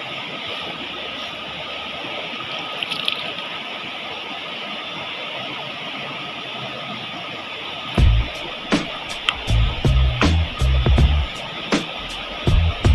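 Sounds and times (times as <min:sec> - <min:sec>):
water rushing over rocks: 0:00.0 - 0:12.9.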